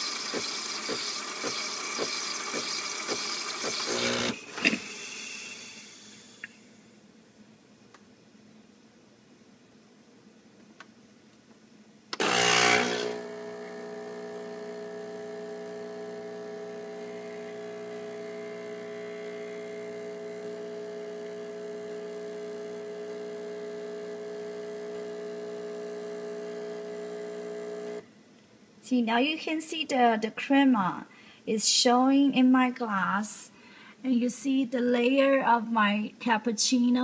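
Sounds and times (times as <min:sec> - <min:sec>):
espresso machine brewing: 0:00.0 - 0:06.6, 0:12.2 - 0:28.0.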